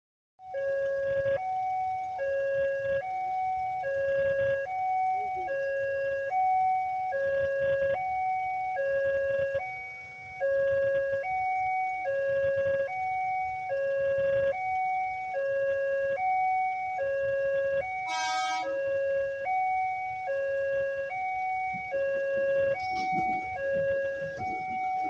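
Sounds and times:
level crossing two-tone alarm: 0:00.4 - 0:25.0
train horn blast: 0:18.0 - 0:18.8.

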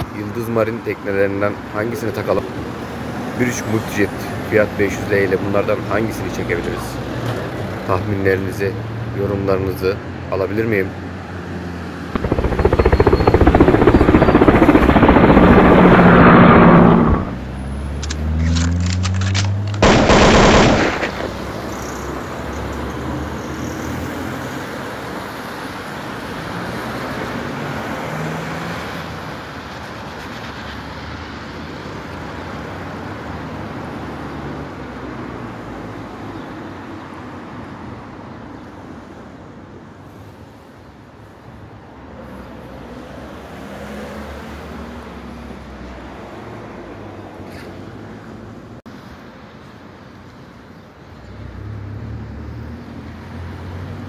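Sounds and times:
street traffic noise: 0:00.0 - 0:12.2, 0:17.3 - 0:54.0
loud rushing burst: 0:12.2 - 0:17.5, 0:19.8 - 0:21.9.

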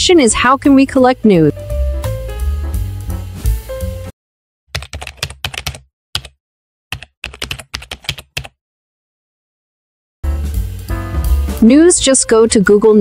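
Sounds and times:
keyboard typing clicks: 0:04.8 - 0:08.5.

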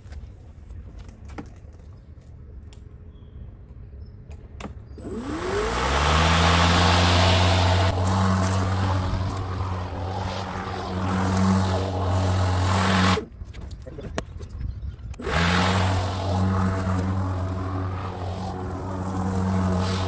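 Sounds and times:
lawn mower motor whirring: 0:05.0 - 0:13.3, 0:15.2 - 0:20.0.

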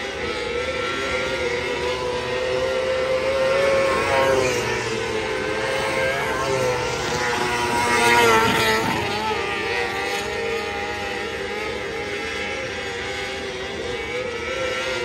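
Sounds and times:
race car engines revving: 0:00.0 - 0:15.0.

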